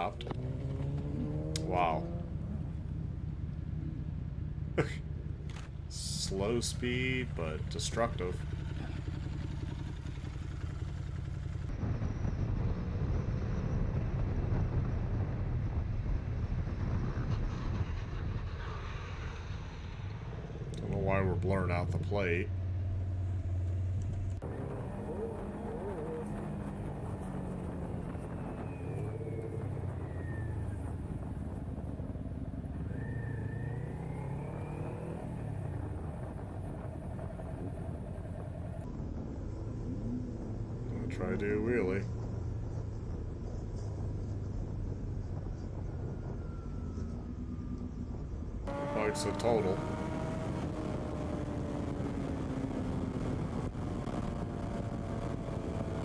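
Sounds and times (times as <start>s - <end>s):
wind rumble: 0.0s - 56.0s
motorcycle engine running: 8.4s - 11.7s.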